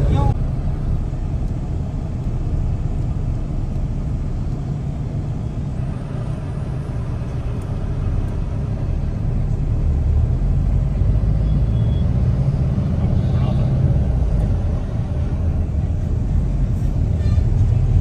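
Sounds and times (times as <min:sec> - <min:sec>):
car engine and road rumble: 0:00.0 - 0:18.0.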